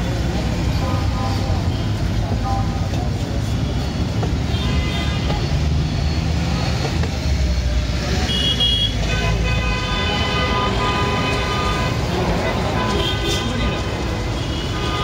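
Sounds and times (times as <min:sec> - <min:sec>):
vehicle engines rumbling: 0:00.0 - 0:15.0
car horns tooting: 0:04.0 - 0:05.8, 0:08.2 - 0:15.0.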